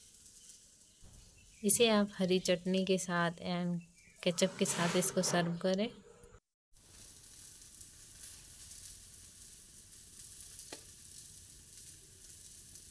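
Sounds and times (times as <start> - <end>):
eggplant frying in oil: 0.0 - 1.8, 6.8 - 12.9.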